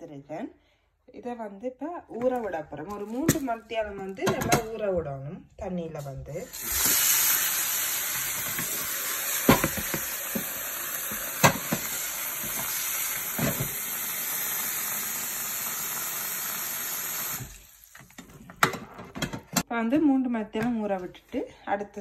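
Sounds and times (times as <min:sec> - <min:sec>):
tap water running into basin: 0:06.5 - 0:18.7.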